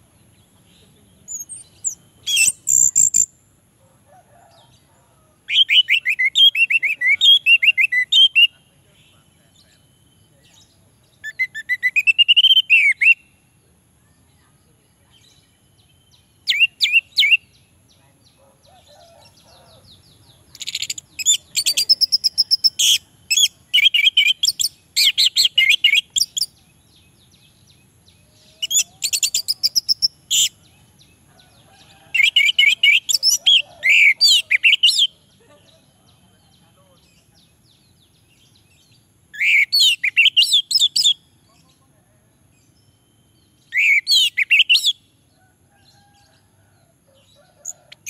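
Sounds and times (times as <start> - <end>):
thrush singing whistled phrases: 11.3 - 13.3, 39.4 - 41.2, 43.7 - 45.0.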